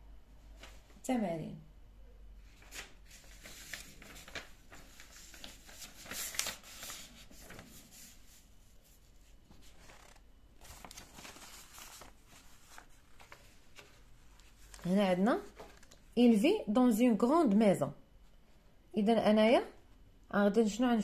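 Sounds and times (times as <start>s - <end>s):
paper rustling: 2.4s - 16.1s.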